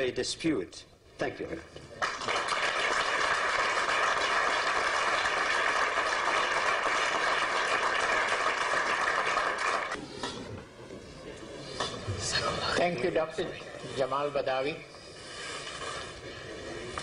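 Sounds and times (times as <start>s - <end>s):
audience applauding: 2.0s - 10.0s.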